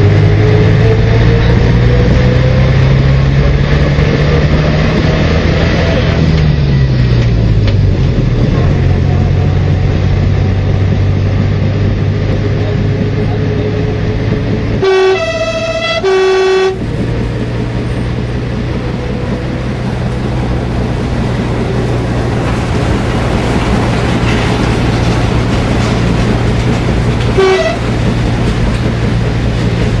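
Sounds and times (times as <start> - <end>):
diesel engine hum: 0.0 - 30.0
rail running noise: 0.0 - 30.0
model train horn tooting: 14.8 - 16.9, 27.3 - 28.0.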